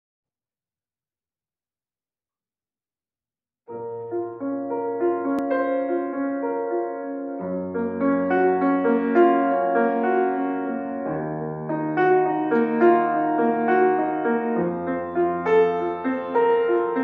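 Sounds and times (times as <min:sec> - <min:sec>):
grand piano playing: 0:03.7 - 0:17.0.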